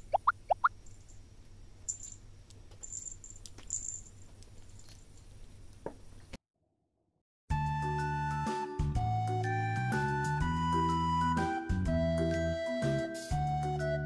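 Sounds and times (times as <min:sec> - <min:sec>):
cat collar bells tinkling: 0:01.8 - 0:05.4
background music: 0:07.5 - 0:14.0.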